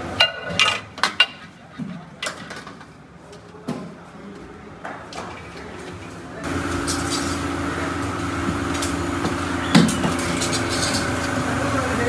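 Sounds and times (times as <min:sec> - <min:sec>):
steady mechanical hum: 0:00.0 - 0:12.0
metal tools clinking: 0:00.2 - 0:01.6, 0:06.7 - 0:07.5, 0:09.7 - 0:11.3.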